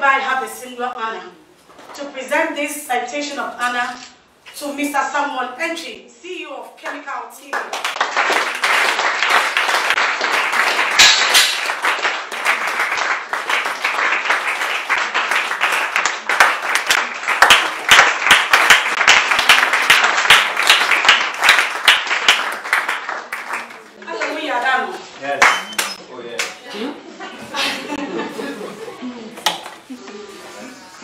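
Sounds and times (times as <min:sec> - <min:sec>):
sharp individual claps: 0:06.8 - 0:23.9
crowd applauding: 0:07.6 - 0:24.4.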